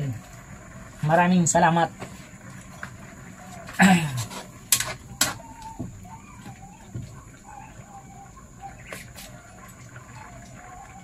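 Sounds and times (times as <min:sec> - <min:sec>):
bird calling softly: 0:02.3 - 0:11.0.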